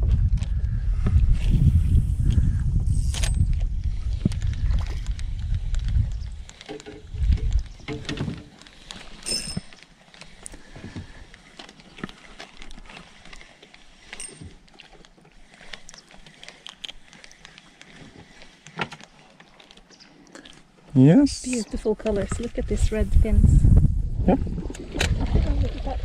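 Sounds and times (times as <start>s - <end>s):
fishing tackle clicking and knocking: 4.3s - 10.6s.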